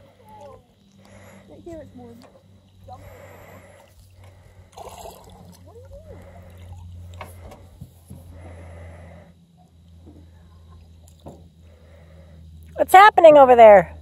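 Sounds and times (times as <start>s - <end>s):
steady low hum: 0.0s - 14.0s
person breathing noisily: 0.9s - 1.8s, 2.8s - 5.4s, 6.0s - 9.5s, 11.6s - 12.5s.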